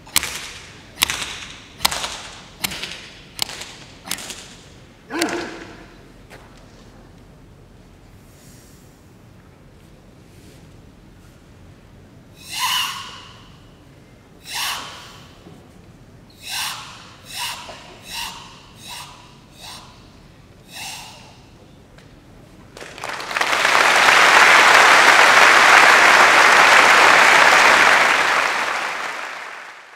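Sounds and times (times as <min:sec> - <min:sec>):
sharp forceful exhalations: 0:12.4 - 0:13.6, 0:14.4 - 0:15.4, 0:16.4 - 0:21.6
audience applauding: 0:22.8 - 0:29.9.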